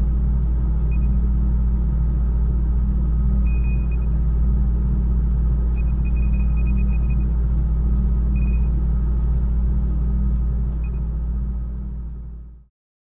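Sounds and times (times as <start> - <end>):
deep machine hum: 0.0 - 12.5
high electronic beeps: 3.5 - 4.0, 4.9 - 7.2, 8.0 - 9.6.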